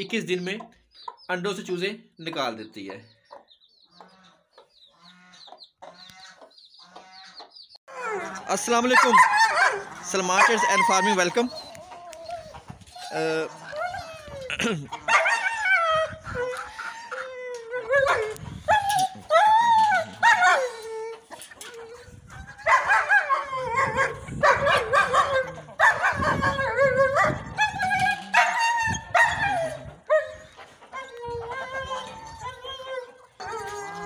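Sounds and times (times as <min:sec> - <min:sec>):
dog barking and howling: 0:07.9 - 0:34.0.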